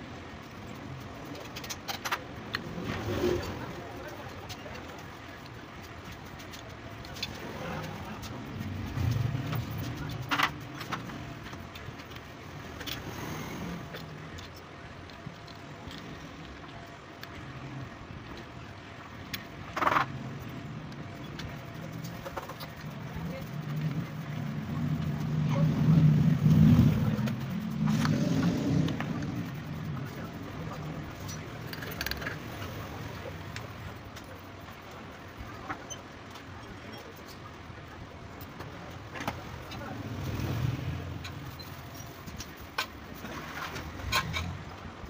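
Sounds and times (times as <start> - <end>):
low hum: 0.0 - 45.0
vehicle engine passing by: 23.9 - 31.0, 39.6 - 41.7
metal parts clicking: 28.8 - 32.7.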